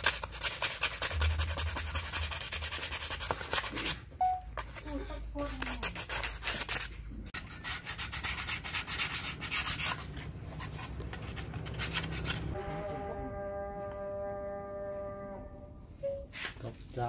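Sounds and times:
sandpaper rubbing on wood: 0.0 - 4.0, 5.4 - 12.5.

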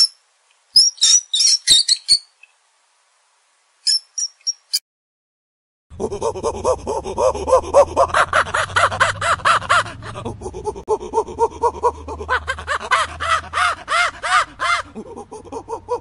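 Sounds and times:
monkey calling: 11.1 - 16.0.

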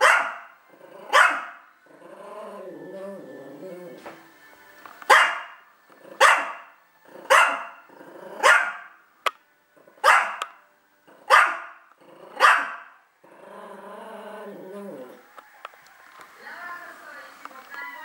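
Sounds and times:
small dog barking: 0.0 - 0.5, 1.1 - 1.6, 5.1 - 5.5, 6.2 - 6.6, 7.3 - 7.7, 8.4 - 8.9, 10.0 - 10.4, 11.3 - 11.8, 12.4 - 12.9.

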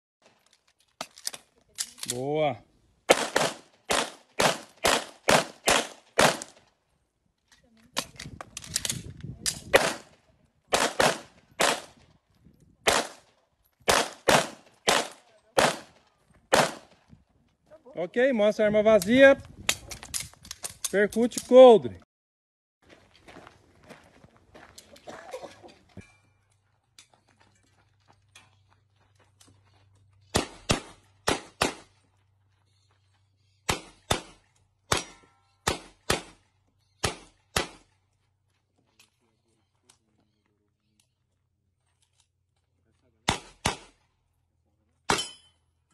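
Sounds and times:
pistol shots: 3.1 - 6.6, 9.7 - 10.1, 10.7 - 11.9, 12.8 - 13.3, 13.9 - 16.9, 30.3 - 31.9, 33.7 - 36.4, 37.0 - 37.9, 43.2 - 44.0.

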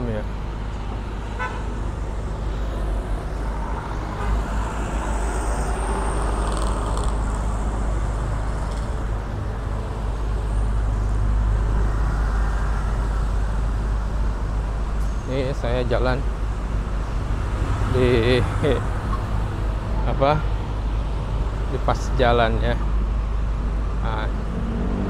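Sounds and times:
cars and motorcycles passing: 0.0 - 25.0.

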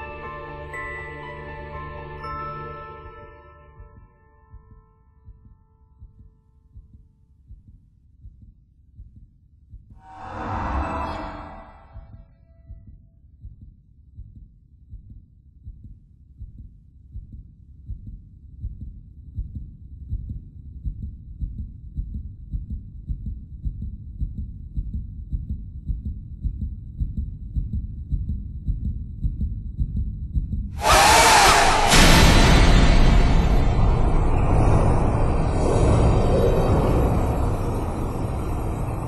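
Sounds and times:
pulsing heartbeat: 3.8 - 31.2.

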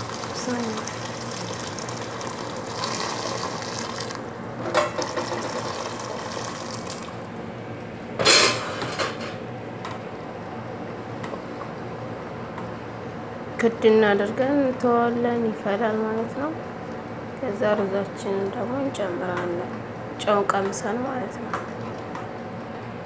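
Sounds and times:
water pouring into a pot: 0.0 - 4.3, 5.0 - 7.2.

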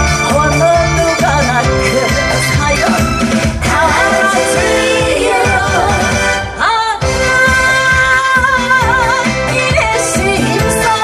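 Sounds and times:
loud band backing track: 0.0 - 11.0
woman singing into microphone: 3.6 - 11.0.

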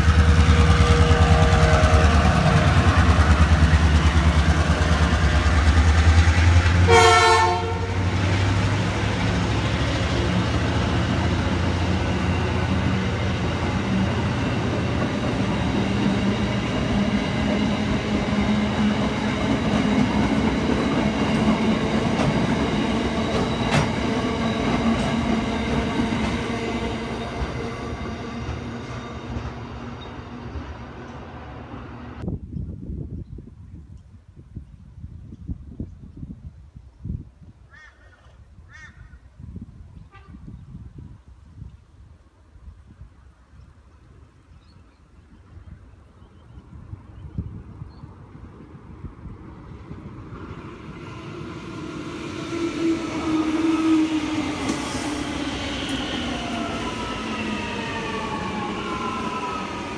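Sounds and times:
diesel locomotive engine: 0.0 - 32.3, 42.2 - 59.9
train horn toot: 0.3 - 2.9, 6.8 - 8.2, 40.0 - 40.6.

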